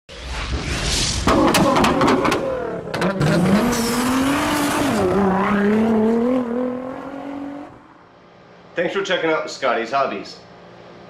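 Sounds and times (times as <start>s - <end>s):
sports car engine revving: 1.3s - 8.0s.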